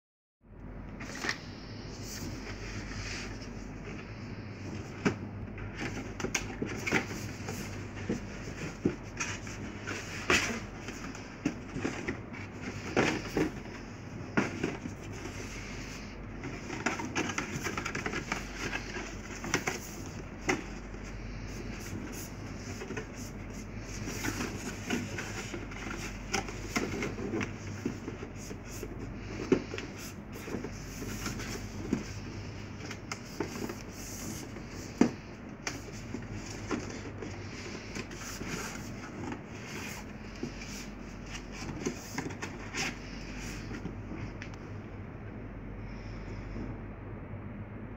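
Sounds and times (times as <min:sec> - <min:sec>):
low steady hum: 0:00.4 - 0:47.9
cardstock crackling and rustling: 0:01.0 - 0:44.4.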